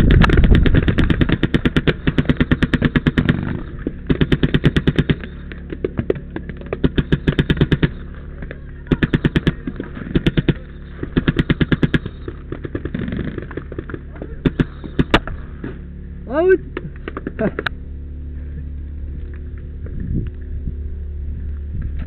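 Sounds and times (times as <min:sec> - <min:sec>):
wind on microphone: 0:00.0 - 0:02.2, 0:19.7 - 0:22.0
paintball marker firing rapidly: 0:00.0 - 0:15.7
running footsteps rumble: 0:00.0 - 0:22.0.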